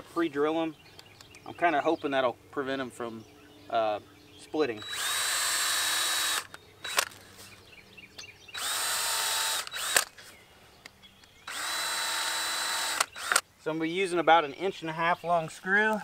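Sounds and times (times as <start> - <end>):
cordless drill whining: 4.8 - 7.3, 8.5 - 10.2, 11.4 - 13.4.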